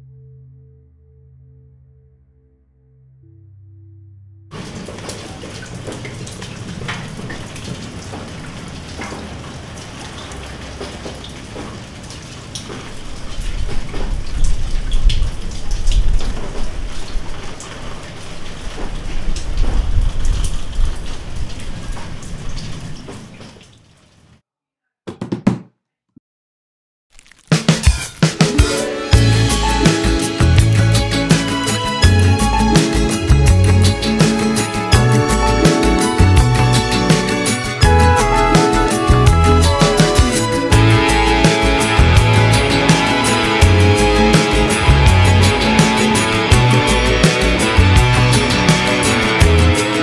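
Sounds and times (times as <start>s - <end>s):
music: 0.0s - 4.6s, 27.5s - 50.0s
tap water splashing on hands: 4.6s - 9.5s, 10.1s - 13.0s.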